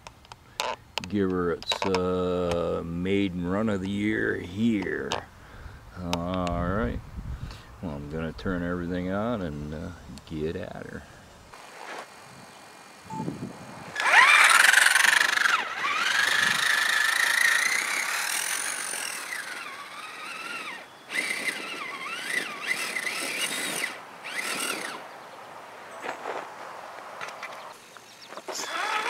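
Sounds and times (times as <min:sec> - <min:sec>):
toy truck electric motor whining: 0:13.9 - 0:25.1, 0:28.4 - 0:29.0.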